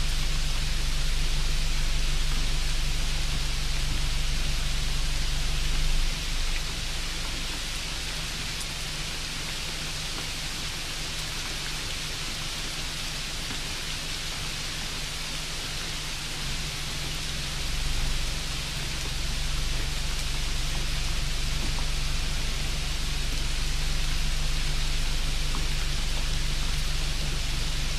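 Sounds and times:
low hum: 0.0 - 8.9, 16.3 - 27.9
steady hissing noise: 0.0 - 27.9.

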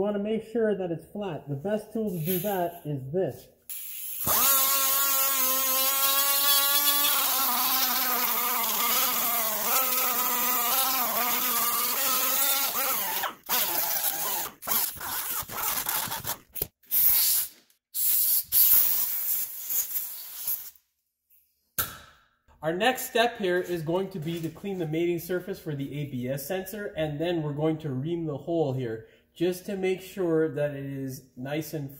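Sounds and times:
die grinder whining: 4.0 - 16.6.

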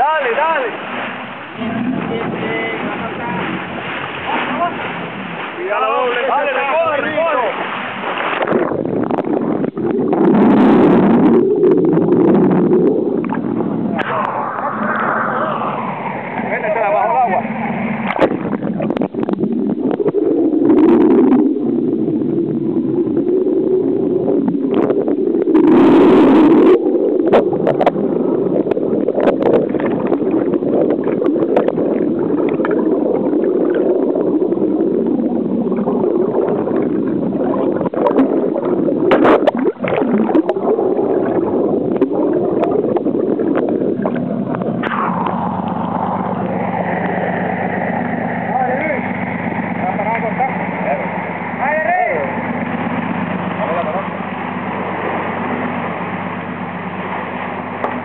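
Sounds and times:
water gurgling underwater: 0.0 - 58.0
pops and knocks underwater: 8.1 - 14.2, 18.0 - 20.2, 28.6 - 34.0, 35.7 - 46.5, 57.8 - 58.0.

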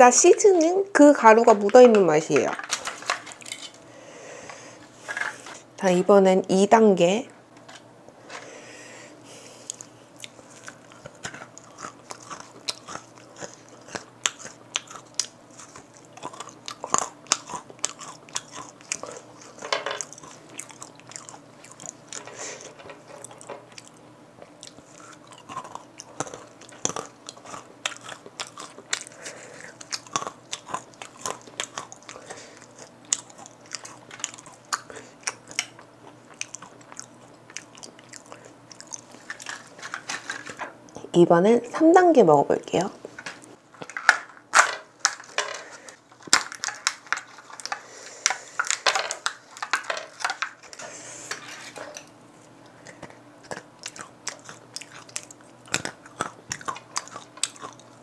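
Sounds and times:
crunching and chewing peanuts: 9.4 - 41.1, 43.4 - 58.0.

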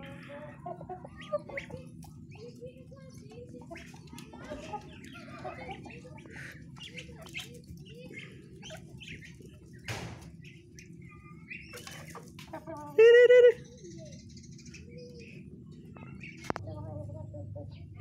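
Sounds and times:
birds soft calls: 0.0 - 18.0
pecking and scuffling: 1.2 - 13.0.

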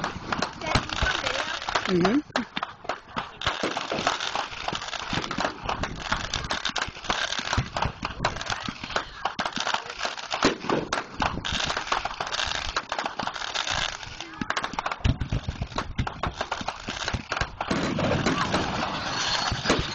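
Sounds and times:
fireworks popping and crackling: 0.0 - 19.9
loud firework bang: 17.0 - 19.9.

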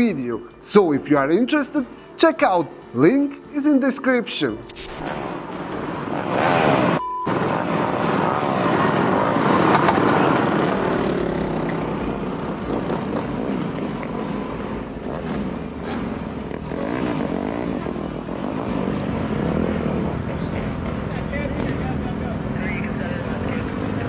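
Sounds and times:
dirt bike and quad engines revving: 4.8 - 24.0.

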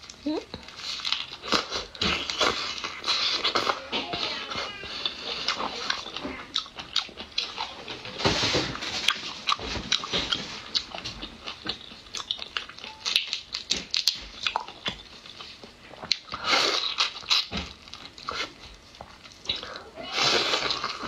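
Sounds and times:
wet chewing and lip smacking: 4.8 - 8.1, 9.0 - 19.8.

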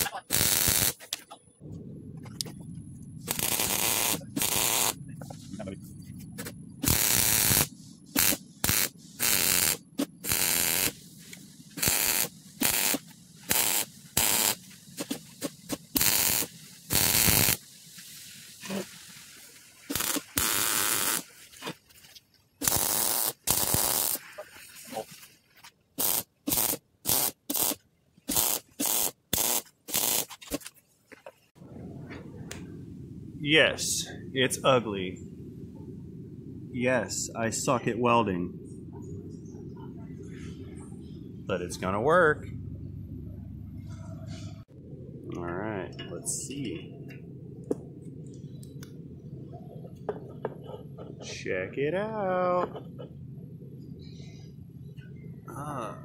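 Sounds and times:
welder arc crackling: 0.0 - 1.2, 3.2 - 5.0, 6.8 - 18.8, 19.8 - 21.3, 22.6 - 24.2, 26.0 - 30.6.

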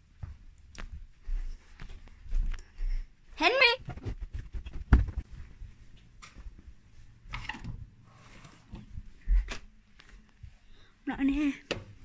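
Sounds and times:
footsteps on wooden floor: 0.1 - 3.0.

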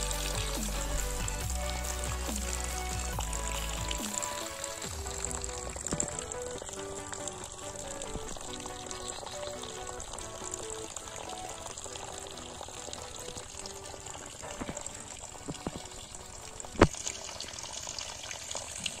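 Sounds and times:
water splashing from small pump: 0.0 - 19.0.

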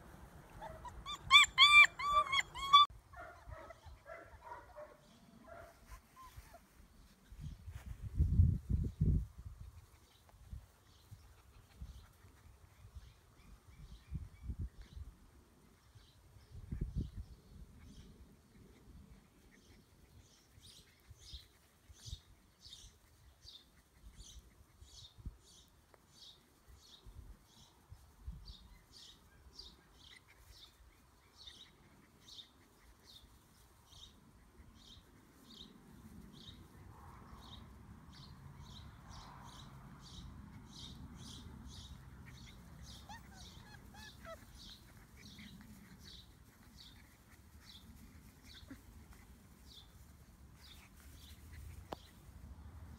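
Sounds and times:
bird chirping: 36.4 - 52.2.

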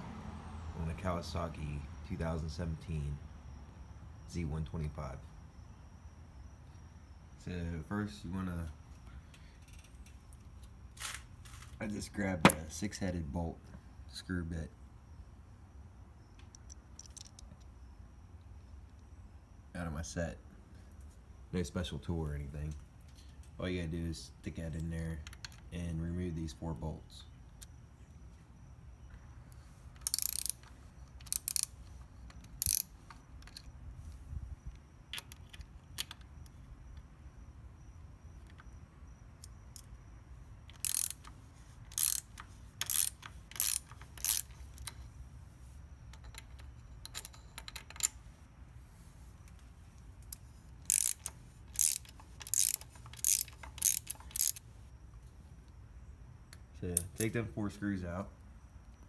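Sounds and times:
hand ratchet clicking: 9.6 - 10.2, 30.0 - 33.7, 40.6 - 45.0, 50.2 - 54.6.

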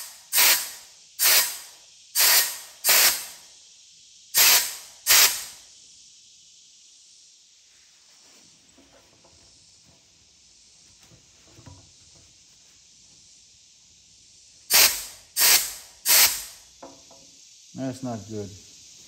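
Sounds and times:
short loud air blasts: 0.0 - 6.1, 14.6 - 19.0
compressed air hissing from hose: 0.0 - 19.0.

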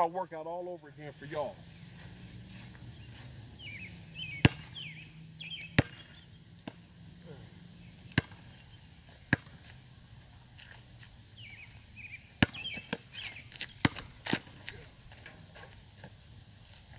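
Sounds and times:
ball bouncing on asphalt: 4.3 - 4.9, 5.6 - 6.9, 8.1 - 9.8, 12.4 - 16.2.

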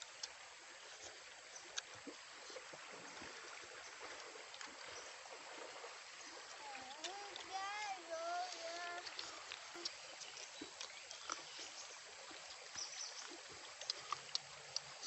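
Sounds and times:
faint outdoor hiss: 0.0 - 15.0
soft clicks and ticks: 6.4 - 11.5, 12.3 - 15.0.

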